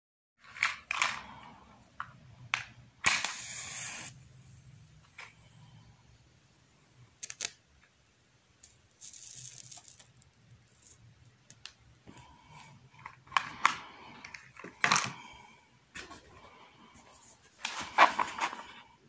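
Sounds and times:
handling clicks and rustling: 13.0s - 15.3s, 17.3s - 18.9s.

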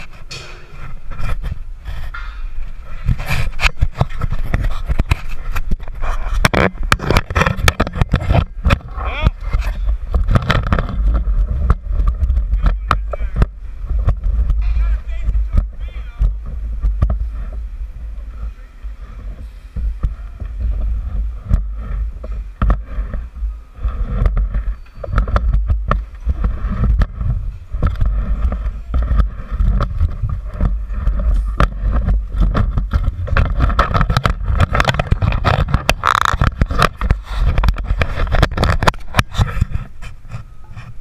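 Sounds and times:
metal scrape: 0.0s - 11.6s
wind buffeting microphone: 0.0s - 41.0s
clanks and knocks from steel beam: 0.2s - 0.9s.

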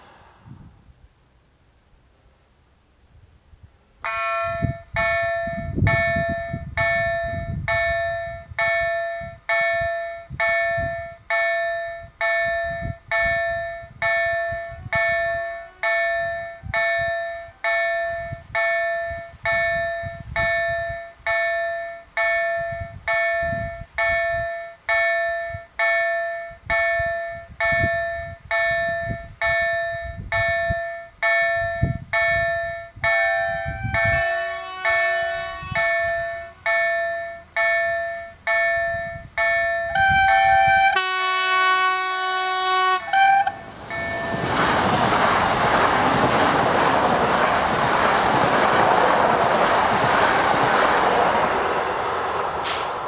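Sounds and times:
level crossing warning bell: 4.0s - 41.8s, 42.8s - 44.5s.

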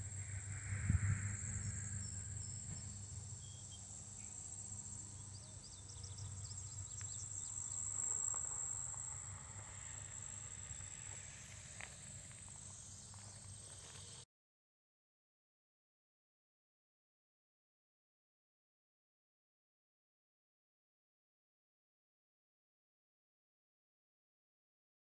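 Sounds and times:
low rumble: 0.0s - 3.4s
insect chorus drone: 0.0s - 14.2s.

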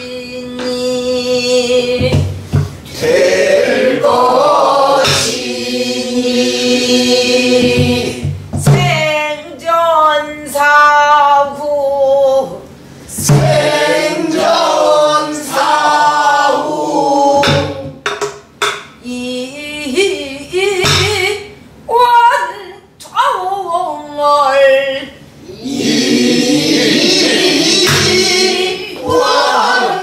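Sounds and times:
woman singing long wavering notes: 0.0s - 2.2s
barrel drum strokes: 1.9s - 5.6s, 7.4s - 9.2s, 13.1s - 15.8s, 17.2s - 19.0s, 20.8s - 21.4s, 27.1s - 30.0s.

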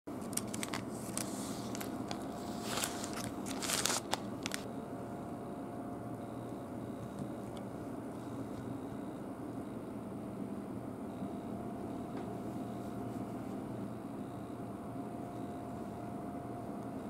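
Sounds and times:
low background hum: 0.1s - 17.0s
baking paper crinkling: 0.2s - 4.7s.

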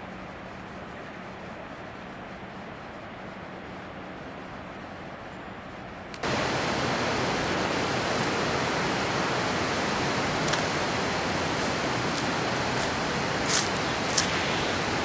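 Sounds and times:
quiet hiss: 0.0s - 15.0s
waterfall roaring: 6.2s - 15.0s.

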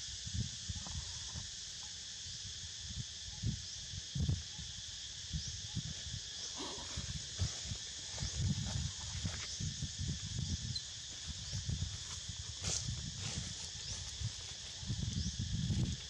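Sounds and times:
insect chorus hissing: 0.0s - 16.0s.

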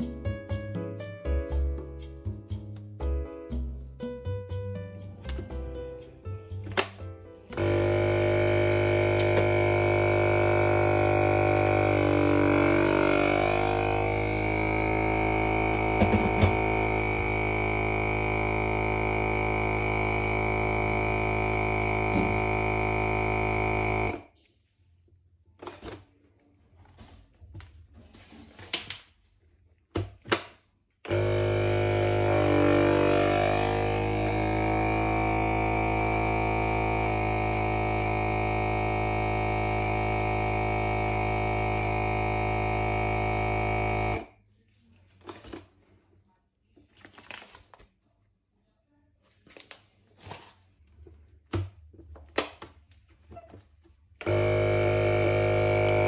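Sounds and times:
electric appliance drone: 7.5s - 24.3s, 31.1s - 44.4s, 54.2s - 56.0s.

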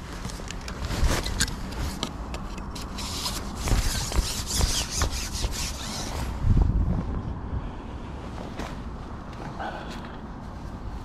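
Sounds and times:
rubbing and scraping: 0.0s - 6.6s.

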